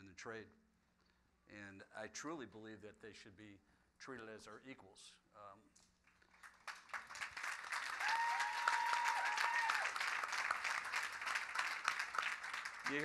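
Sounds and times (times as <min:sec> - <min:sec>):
audience applause: 0:06.4 - 0:13.0
crowd whooping: 0:08.0 - 0:10.0.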